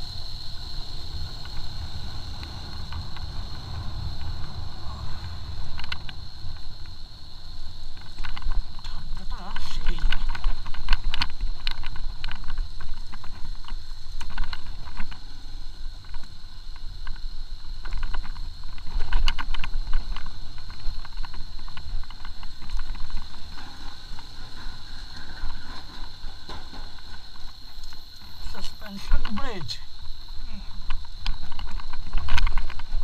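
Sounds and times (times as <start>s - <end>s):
motorcycle engine rumble: 0.0s - 27.4s
wind noise: 0.0s - 33.0s
thin steady high tone: 26.9s - 31.1s.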